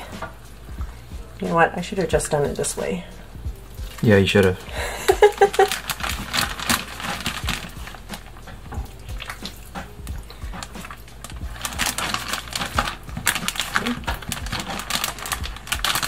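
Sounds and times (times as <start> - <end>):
plastic bag crinkling: 3.8 - 16.0.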